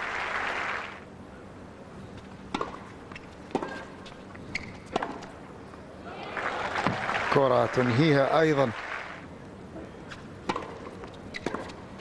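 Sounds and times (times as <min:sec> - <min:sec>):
crowd applause: 0:00.0 - 0:01.0, 0:06.1 - 0:09.2
tennis ball struck by racket: 0:02.5 - 0:02.8, 0:04.9 - 0:05.3, 0:10.4 - 0:11.8.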